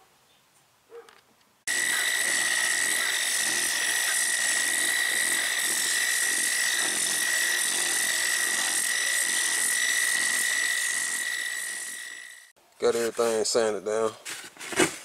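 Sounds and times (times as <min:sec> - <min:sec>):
orbital sander whining: 0:01.7 - 0:12.6.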